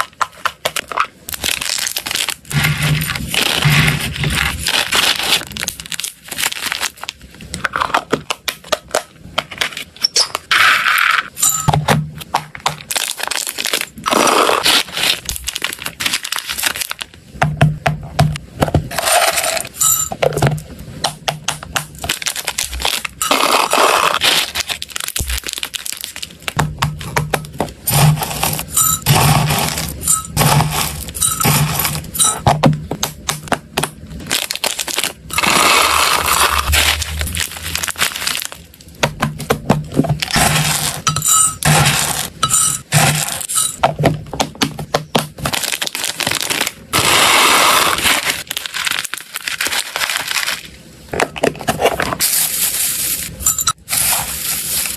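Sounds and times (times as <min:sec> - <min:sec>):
plastic packaging rustling: 0:00.0 - 0:10.5, 0:12.2 - 0:17.3, 0:21.7 - 0:32.5, 0:33.6 - 0:39.0, 0:45.1 - 0:54.9
food pellets rattling in containers: 0:18.9 - 0:20.3.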